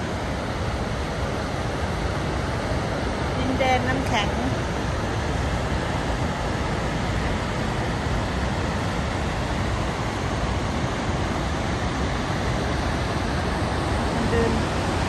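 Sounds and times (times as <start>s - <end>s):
waterfall rushing: 0.0s - 15.0s.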